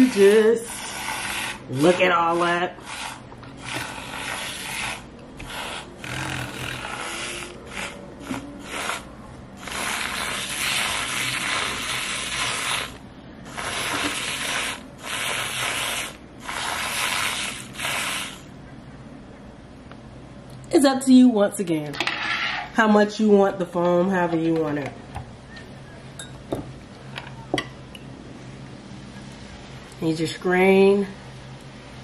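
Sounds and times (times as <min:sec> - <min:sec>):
milk frother whirring: 0:00.0 - 0:18.5.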